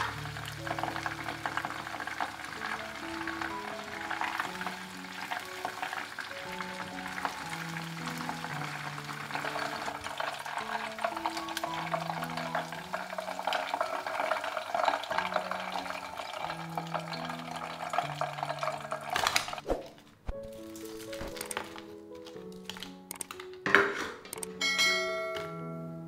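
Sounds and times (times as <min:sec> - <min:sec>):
wings frying in hot oil: 0:00.0 - 0:19.6
soft background music: 0:00.0 - 0:26.0.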